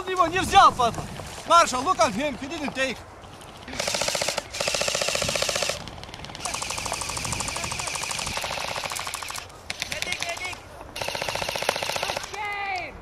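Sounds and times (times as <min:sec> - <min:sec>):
airsoft rifles firing bursts: 0:03.7 - 0:12.5.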